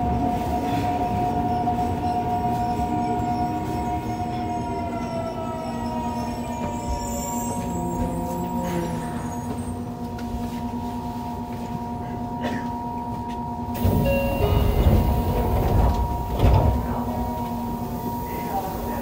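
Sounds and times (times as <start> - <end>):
low rumble with knocks: 13.8 - 17.5.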